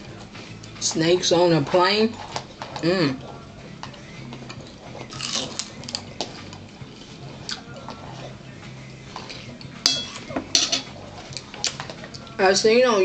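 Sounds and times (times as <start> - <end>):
chewing and mouth noises: 2.2 - 9.8, 11.0 - 12.4
spoons clicking against bowls: 9.2 - 12.3.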